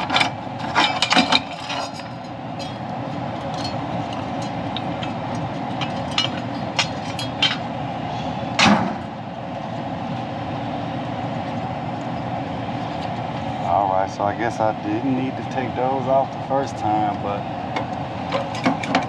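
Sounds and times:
steady mechanical rumble: 0:00.0 - 0:19.0.

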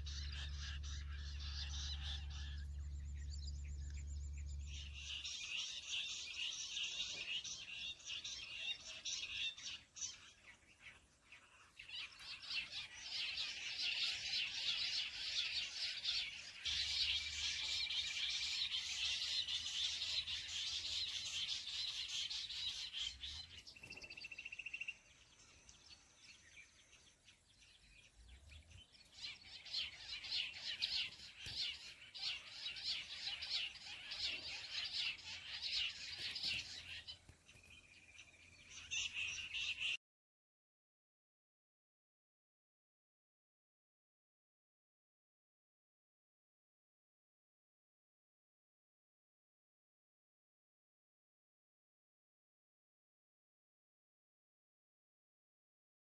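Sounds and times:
quail chattering chorus: 0:00.0 - 0:03.0, 0:04.7 - 0:24.5, 0:29.1 - 0:37.8.

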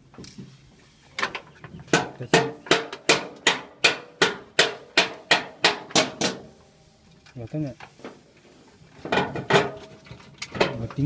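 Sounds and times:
hammering on metal: 0:01.9 - 0:06.5.

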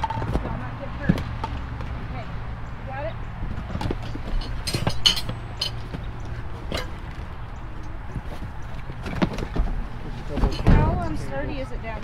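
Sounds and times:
sharp clinks and knocks: 0:04.0 - 0:06.0.

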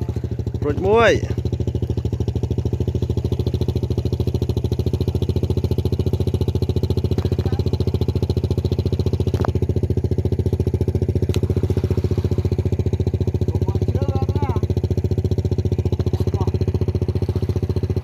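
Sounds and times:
diesel engine throbbing: 0:00.0 - 0:18.0.

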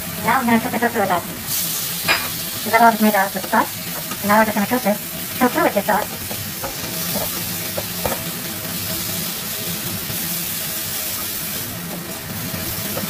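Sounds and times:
vegetables sizzling in wok: 0:00.0 - 0:13.0
spatula scraping and tapping pan: 0:03.4 - 0:04.4, 0:05.4 - 0:09.0.

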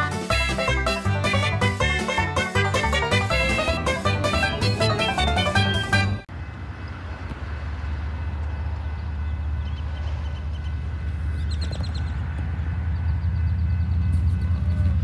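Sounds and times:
freight train rumble: 0:00.0 - 0:15.0
birds chirping: 0:08.4 - 0:15.0.

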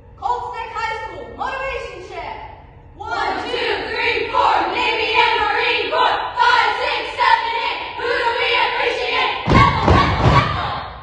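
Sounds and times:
voices chanting together: 0:03.0 - 0:11.0
heavy thump: 0:09.4 - 0:10.7.

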